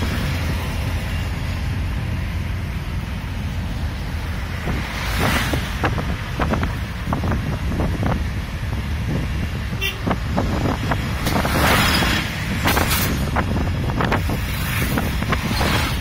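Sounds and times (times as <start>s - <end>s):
tyre and engine rumble: 0.0s - 16.0s
wind on microphone: 4.6s - 16.0s.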